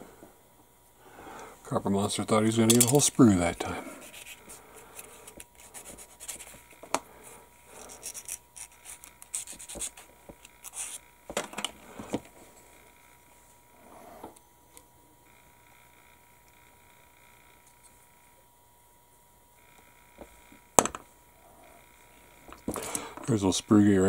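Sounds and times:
plastic scratching on sanding stick: 3.6s - 6.7s, 7.9s - 11.0s.

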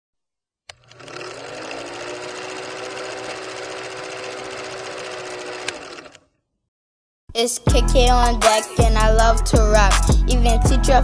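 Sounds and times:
film projector clattering: 0.7s - 6.2s
motor hum: 0.7s - 6.2s.

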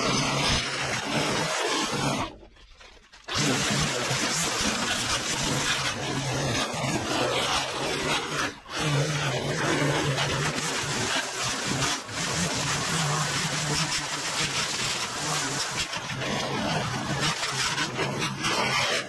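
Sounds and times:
trimmer line cutting grass: 0.0s - 19.0s
line trimmer engine revving: 3.2s - 15.6s.

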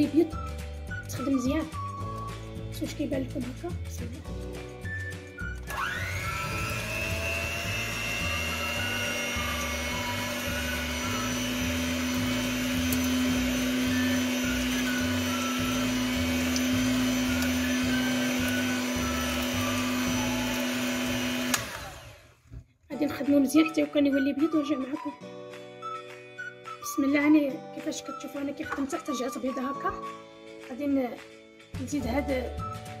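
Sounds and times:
electric hand mixer whining: 5.5s - 22.6s.

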